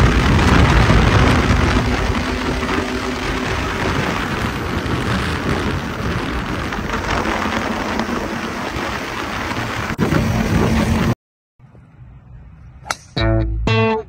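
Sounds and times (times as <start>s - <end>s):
motorcycle engine at speed: 0.0s - 11.1s.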